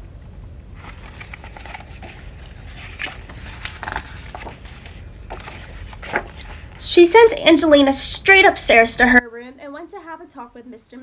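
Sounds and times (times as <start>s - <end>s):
low room hum: 0.0s - 11.0s
book pages rustling: 0.8s - 6.9s.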